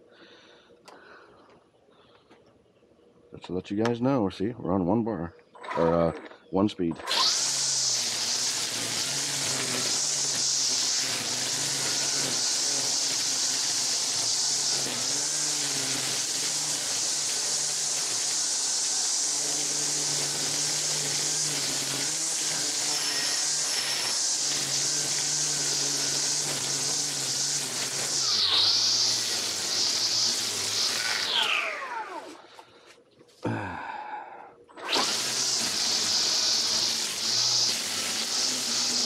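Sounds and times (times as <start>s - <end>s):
string trimmer cutting weeds: 7.0s - 32.6s, 34.8s - 39.0s.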